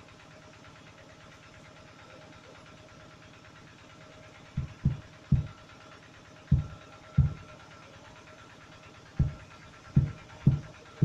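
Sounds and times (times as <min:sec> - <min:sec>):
loudspeaker hum and hiss: 0:00.0 - 0:11.0
deep frame drum thumps: 0:04.6 - 0:05.6, 0:06.5 - 0:07.5, 0:09.2 - 0:10.8.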